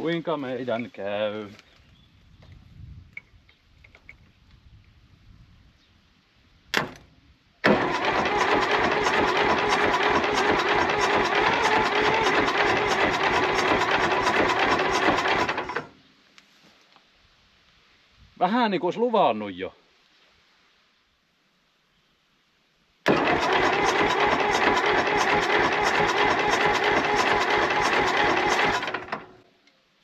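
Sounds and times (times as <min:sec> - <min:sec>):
diesel engine cranking: 0:07.6 - 0:15.9, 0:23.1 - 0:29.4.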